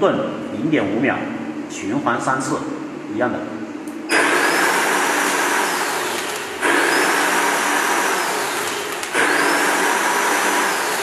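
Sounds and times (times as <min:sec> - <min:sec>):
spark machines hissing with whine: 0:04.1 - 0:11.0.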